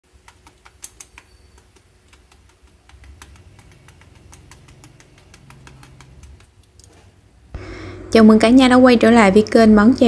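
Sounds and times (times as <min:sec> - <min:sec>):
fried food crackling: 0:00.1 - 0:07.0
low hum: 0:07.4 - 0:10.0.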